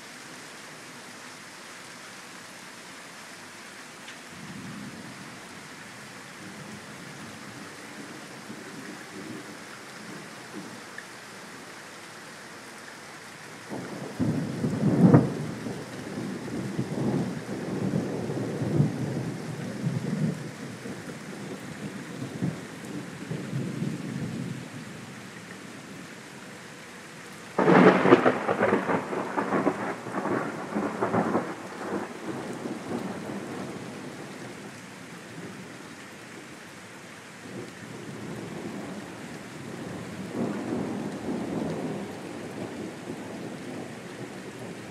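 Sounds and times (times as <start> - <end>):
steady rain: 0.0 - 44.9
thunder rumbling and cracking: 13.7 - 20.5, 27.6 - 34.0, 39.7 - 44.9.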